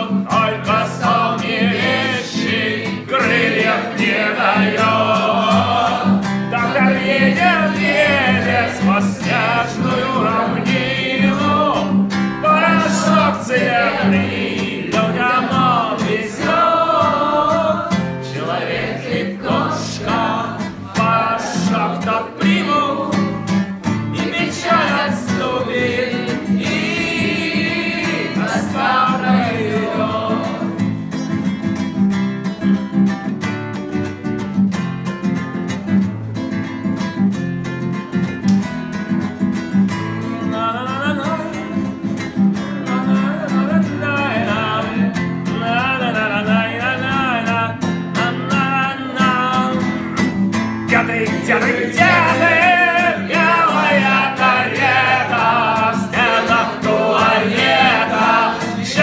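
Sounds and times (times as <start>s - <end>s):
group singing: 0.0s - 31.5s, 40.2s - 59.0s
acoustic guitar strumming: 0.0s - 59.0s.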